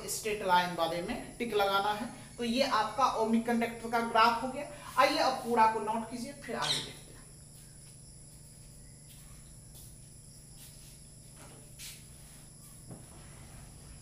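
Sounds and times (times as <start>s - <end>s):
faint high whine: 0.0s - 14.0s
low electrical hum: 0.0s - 14.0s.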